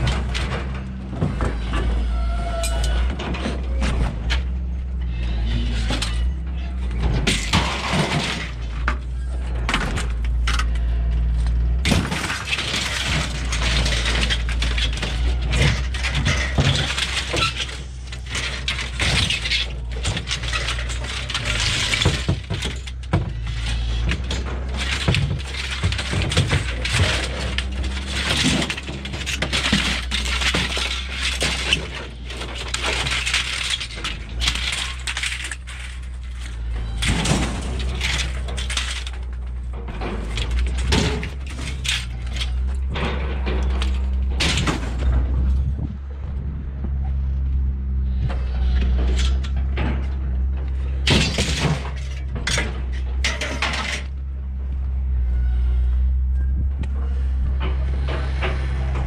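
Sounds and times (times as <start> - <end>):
aluminum frames clattering: 11.8 - 45.3
steady low hum: 17.9 - 58.6.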